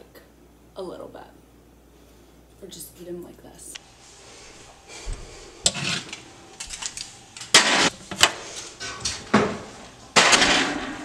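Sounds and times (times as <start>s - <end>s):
metal baking sheet clanking: 7.4s - 11.0s.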